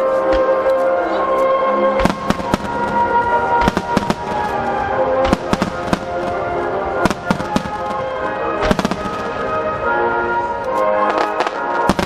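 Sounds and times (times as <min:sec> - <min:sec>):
music with long held notes: 0:00.0 - 0:12.0
firework shells bursting: 0:02.0 - 0:09.6, 0:11.1 - 0:12.0.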